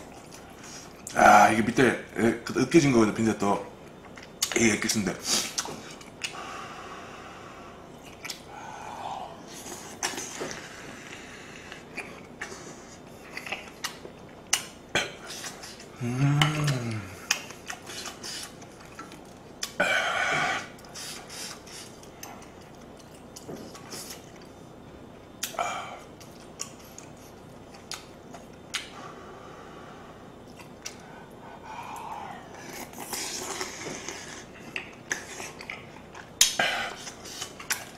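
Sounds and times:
chewing: 0.0s - 1.2s, 8.0s - 8.5s, 9.5s - 19.8s, 20.7s - 24.6s, 25.2s - 28.9s, 30.4s - 31.4s, 32.0s - 37.9s
person humming: 16.0s - 17.2s
slurping: 31.9s - 37.9s.

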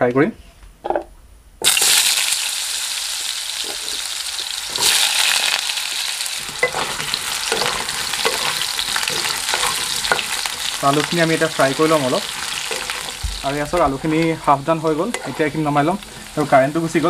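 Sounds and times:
potatoes sizzling in hot oil: 1.6s - 17.0s
spatula scraping a pan: 3.6s - 17.0s.

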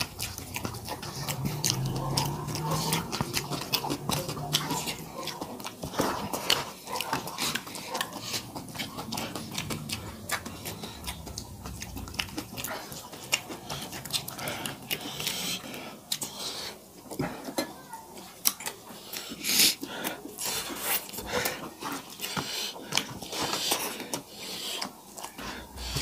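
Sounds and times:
rice squelching mixed by hand: 0.0s - 17.4s
wet chewing and lip smacks: 0.0s - 26.0s.

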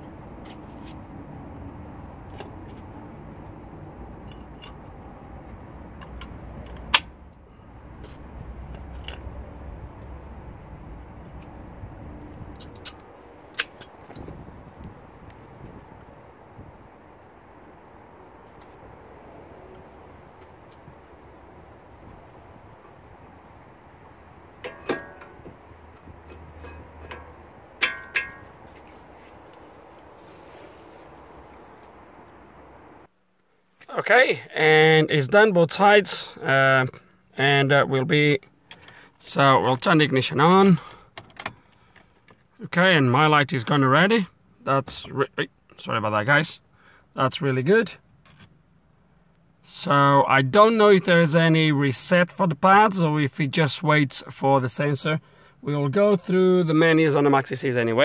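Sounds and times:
metallic clicks of brake parts: 4.2s - 14.4s, 24.6s - 30.1s, 38.4s - 39.8s
metal clinking on metal: 12.6s - 14.4s, 24.6s - 29.1s.

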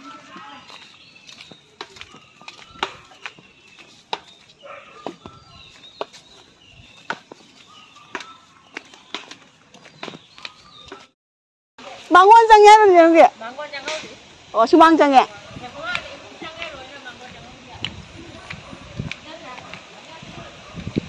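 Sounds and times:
faint bird calls: 0.0s - 9.4s
flip-flop footsteps on wet mud: 0.0s - 11.2s.

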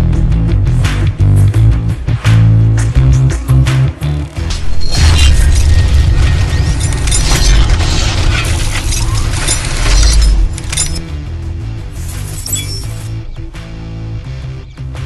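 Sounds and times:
music: 0.0s - 15.0s
deep low rumble: 4.4s - 11.1s
crackling glass-like effects: 4.5s - 11.0s, 12.0s - 13.3s.

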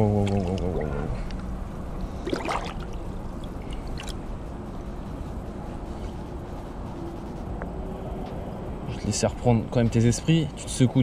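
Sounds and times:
water splashes: 0.1s - 1.1s, 2.1s - 4.2s
muffled underwater sloshing: 2.0s - 4.3s.

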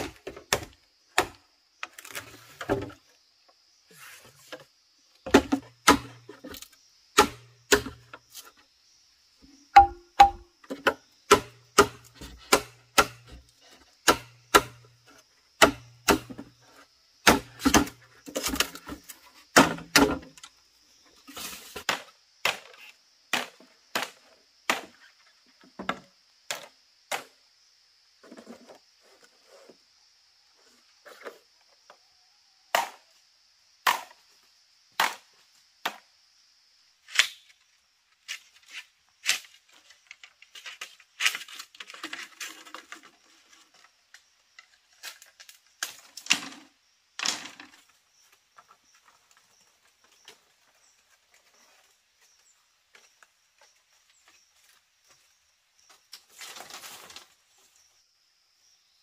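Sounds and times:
chopping into wood: 0.0s - 1.4s, 5.3s - 6.2s, 7.2s - 8.0s, 9.8s - 13.4s, 14.0s - 15.0s, 15.6s - 16.5s, 17.2s - 18.7s, 19.5s - 20.3s, 21.9s - 25.0s, 32.7s - 33.0s, 33.8s - 34.2s, 35.0s - 35.2s, 35.8s - 36.0s.

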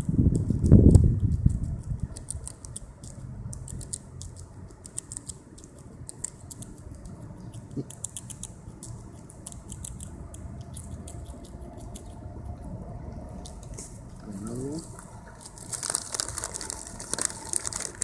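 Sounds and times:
squirrel gnawing a nut: 0.0s - 18.0s.

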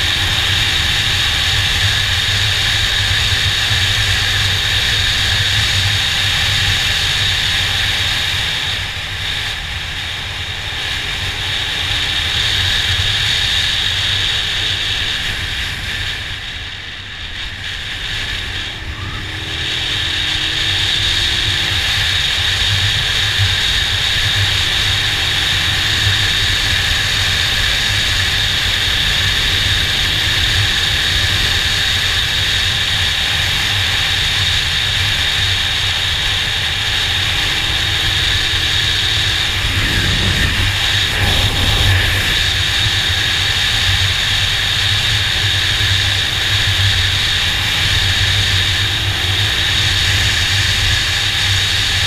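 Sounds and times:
motorcycle engine drone: 0.0s - 52.0s
wind rushing on microphone: 36.2s - 52.0s.

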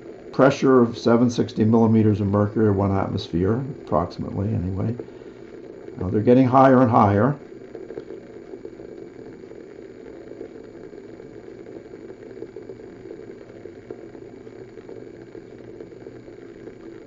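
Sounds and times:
water heating rumble with crackles: 0.0s - 17.0s.

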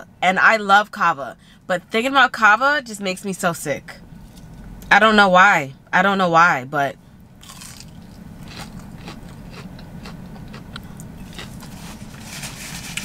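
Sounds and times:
person chewing: 7.4s - 12.3s.

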